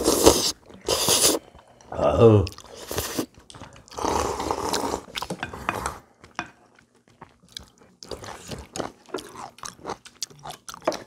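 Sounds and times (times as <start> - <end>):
person slurping noodles: 0.0 - 1.4, 2.0 - 3.3, 3.9 - 5.2
chewing: 0.0 - 11.0.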